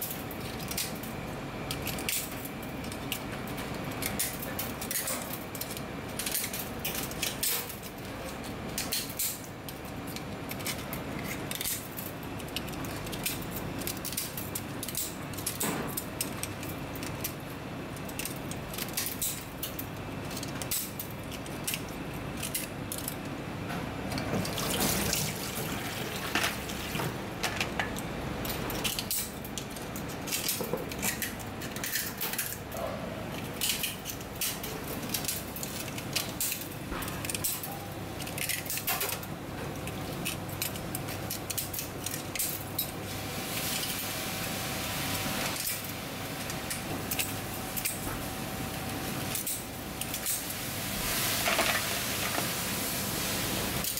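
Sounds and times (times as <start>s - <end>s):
shears clicking on oyster shell: 0.1s - 23.3s, 33.3s - 42.9s, 45.5s - 48.2s.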